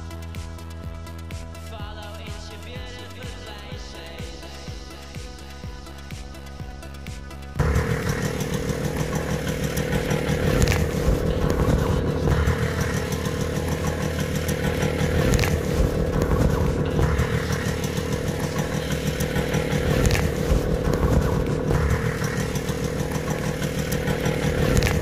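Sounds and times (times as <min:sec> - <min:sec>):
moped engine running: 0:00.0 - 0:25.0.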